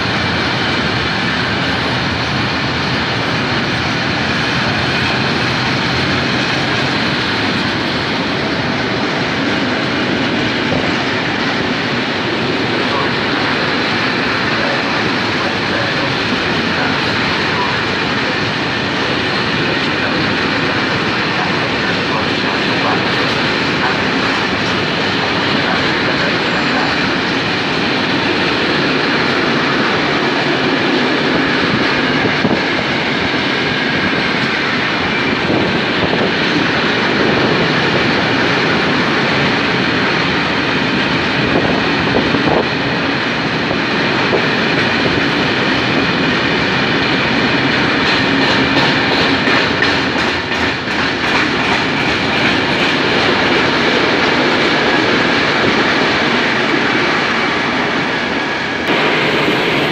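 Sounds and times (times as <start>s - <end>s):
train wheels rumbling on rails: 0.0s - 59.9s
wheels clacking over rail joints: 44.1s - 57.9s.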